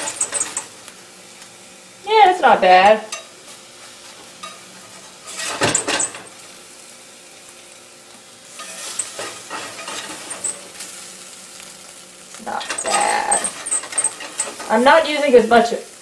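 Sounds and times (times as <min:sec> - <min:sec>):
spatula scraping skillet: 0:00.0 - 0:00.8, 0:02.8 - 0:06.4, 0:08.4 - 0:15.7
light sizzle of frying oil: 0:00.0 - 0:16.0.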